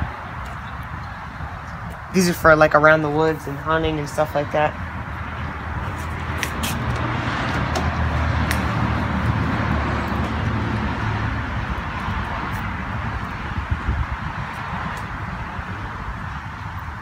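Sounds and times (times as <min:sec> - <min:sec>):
passing vehicle engine and tyres: 0:00.0 - 0:17.0.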